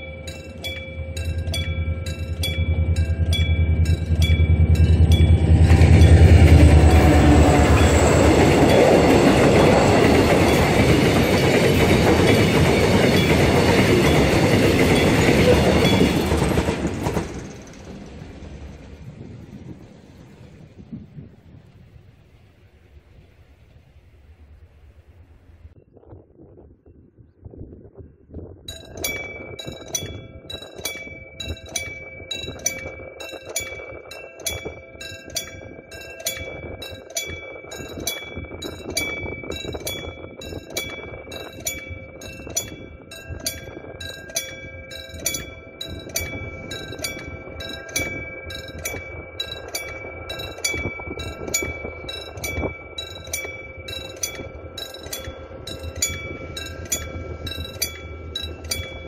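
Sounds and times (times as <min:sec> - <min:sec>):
level crossing bell ringing: 0:00.0 - 0:16.2, 0:28.8 - 0:59.0
diesel locomotive rumble: 0:00.0 - 0:25.8, 0:29.1 - 0:59.0.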